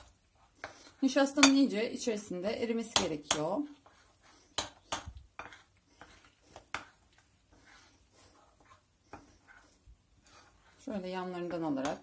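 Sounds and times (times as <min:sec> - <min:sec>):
spoon scraping a bowl: 0:00.0 - 0:01.8, 0:03.0 - 0:12.0
metal spoon clinking on a bowl: 0:01.4 - 0:01.6.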